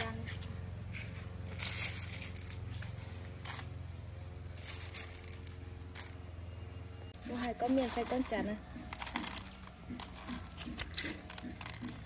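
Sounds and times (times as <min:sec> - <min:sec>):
plastic bag crinkling: 0:04.6 - 0:06.1.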